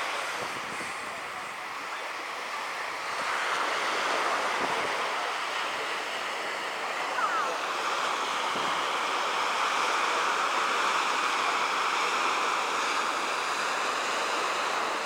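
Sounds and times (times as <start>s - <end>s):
sea surf breaking: 0.0s - 15.0s
wind buffeting microphone: 0.2s - 1.6s.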